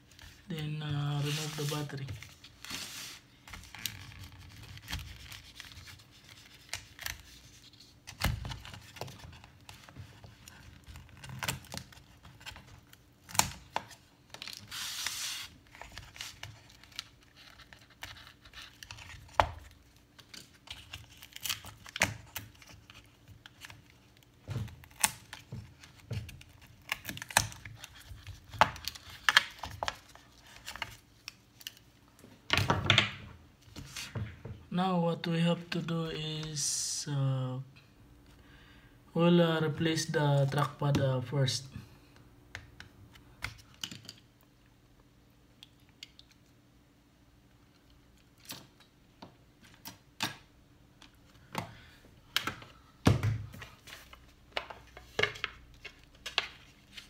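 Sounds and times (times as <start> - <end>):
adhesive tearing and crackling: 16.2 - 31.9.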